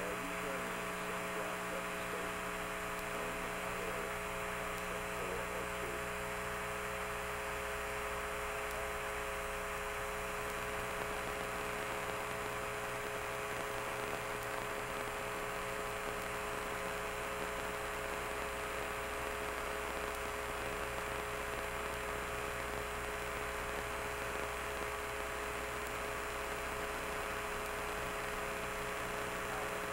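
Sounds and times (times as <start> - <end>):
electrical hum with hiss: 0.0 - 29.9.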